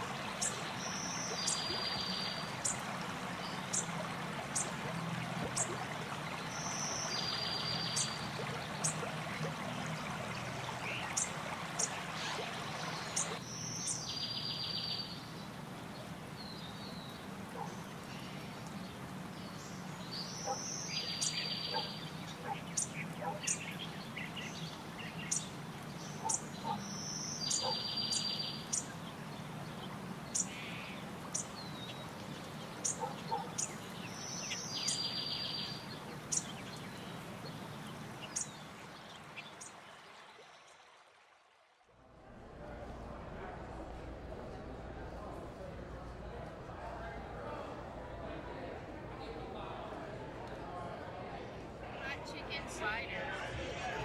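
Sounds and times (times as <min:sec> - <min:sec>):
shallow stream flowing: 0:00.0 - 0:54.0
bird song with trill: 0:00.3 - 0:02.8, 0:04.6 - 0:09.1, 0:10.3 - 0:39.8.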